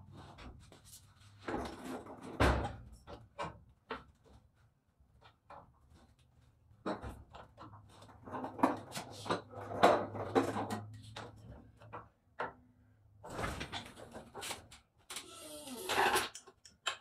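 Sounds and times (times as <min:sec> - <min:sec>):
floor jack clunking and creaking: 0:06.8 - 0:12.6.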